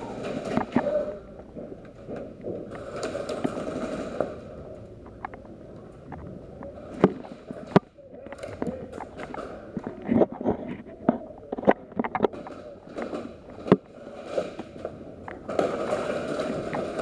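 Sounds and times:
sharp cracks: 0:00.0 - 0:10.6, 0:11.2 - 0:17.0
footsteps: 0:00.0 - 0:17.0.

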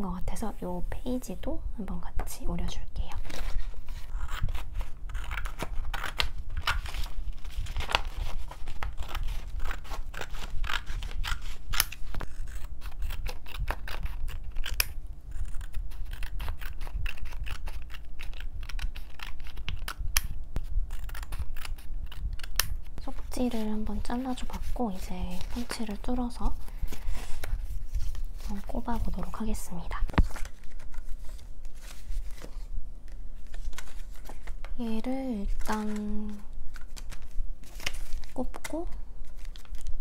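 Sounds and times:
low steady hum: 0:00.0 - 0:40.0
paper rustling: 0:03.1 - 0:14.7, 0:22.4 - 0:34.7, 0:35.4 - 0:40.0
scissors snipping paper: 0:07.7 - 0:20.3.

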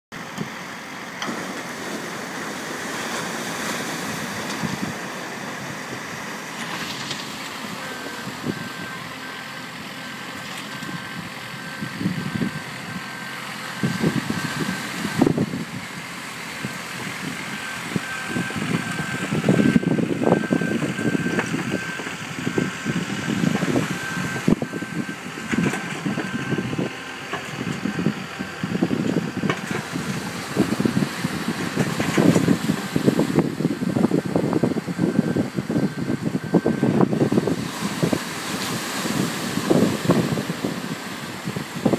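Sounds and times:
tractor engine running: 0:00.1 - 0:41.9
surf breaking on shore: 0:00.4 - 0:09.2, 0:29.4 - 0:41.9
reversing alarm beeping: 0:07.8 - 0:15.7, 0:17.5 - 0:41.2.

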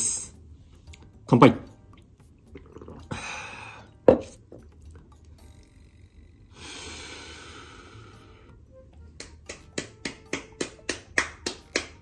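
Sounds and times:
person swallowing: 0:02.5 - 0:03.1
breathy exhale: 0:05.8 - 0:08.5.

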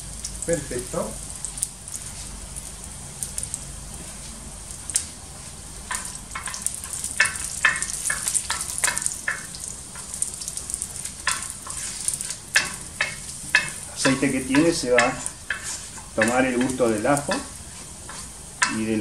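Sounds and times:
garlic sizzling in hot oil: 0:00.0 - 0:19.0
wooden spoon scraping a pan: 0:10.8 - 0:19.0.

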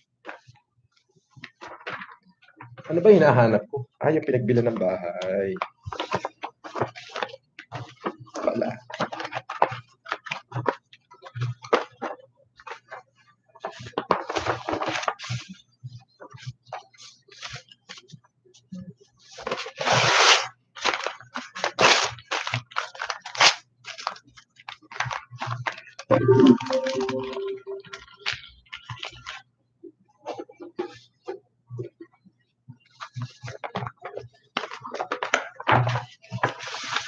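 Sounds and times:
paper rustling: 0:36.4 - 0:37.0.

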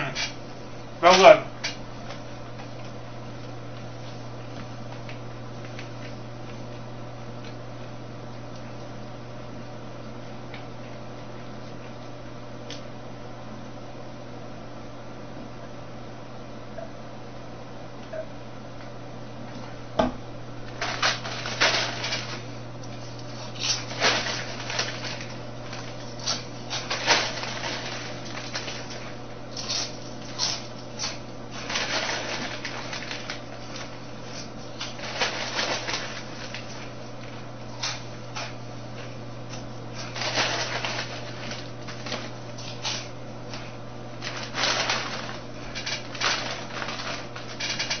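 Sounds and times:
chip bag crinkling: 0:20.6 - 0:48.0
potato chips crunching: 0:20.6 - 0:48.0.

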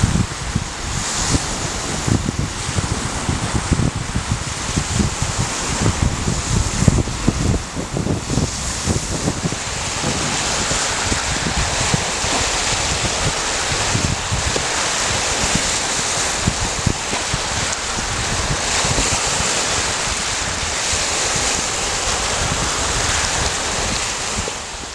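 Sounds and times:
waves washing over pebbles: 0:00.0 - 0:24.9
wind buffeting microphone: 0:00.0 - 0:24.9.

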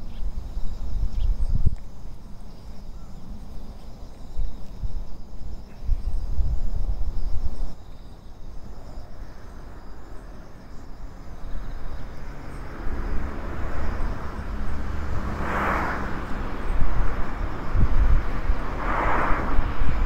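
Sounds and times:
wind rumble on microphone: 0:00.0 - 0:20.0
vehicle engine passing: 0:11.8 - 0:20.0.

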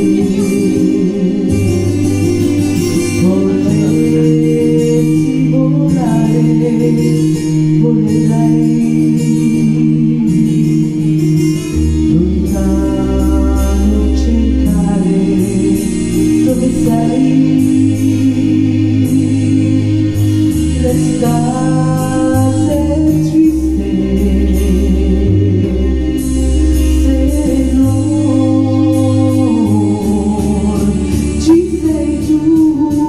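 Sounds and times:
instrumental accompaniment with bass: 0:00.0 - 0:33.0
woman singing into microphone: 0:00.0 - 0:33.0.

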